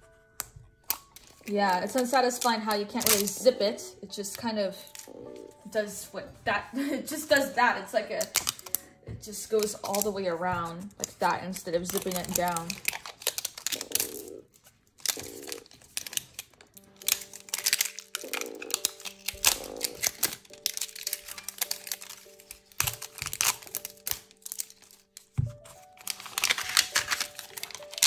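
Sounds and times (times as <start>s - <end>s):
plastic wrapping crinkling: 0.0s - 5.6s, 7.0s - 28.0s
background music sustained tones: 0.0s - 28.0s.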